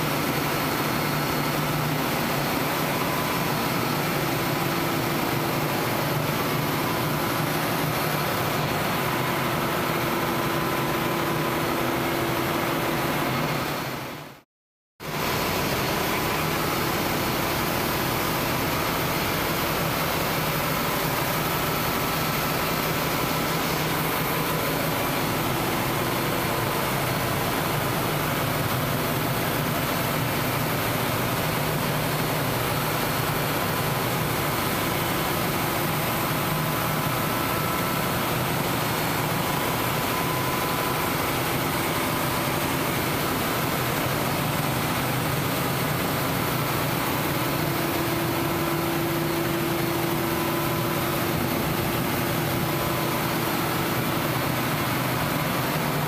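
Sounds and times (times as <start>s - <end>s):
diesel engine drone: 15.1s - 56.0s.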